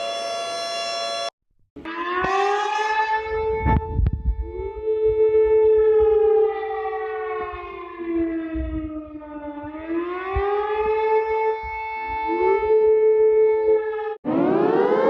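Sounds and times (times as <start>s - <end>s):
siren wailing: 0.0s - 15.0s.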